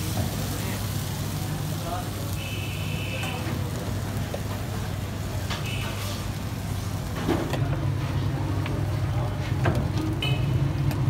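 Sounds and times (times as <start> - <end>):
constant hiss: 0.0 - 7.6
low traffic rumble: 0.0 - 11.0.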